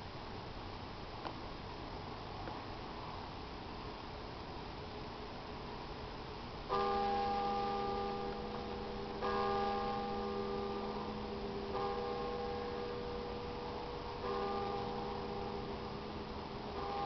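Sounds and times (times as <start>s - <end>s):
bell strokes ringing: 6.7s - 17.0s.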